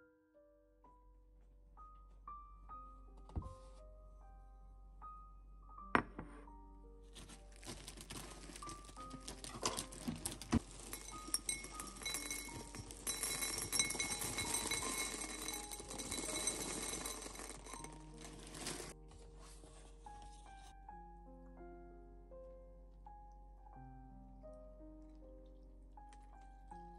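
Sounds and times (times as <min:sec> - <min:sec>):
cereal poured into glass bowl: 0:07.6 - 0:19.0.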